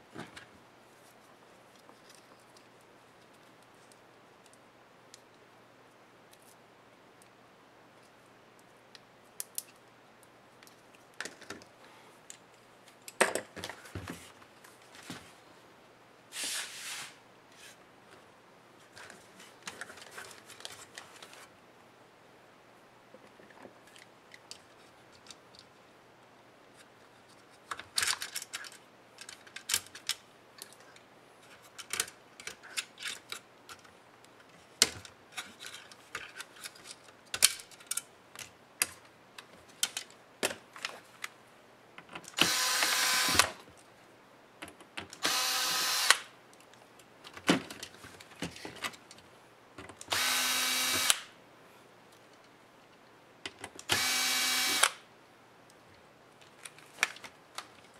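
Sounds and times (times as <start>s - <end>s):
cordless drill running: 42.4s - 43.5s, 45.2s - 46.2s, 50.1s - 51.2s, 53.9s - 55.0s.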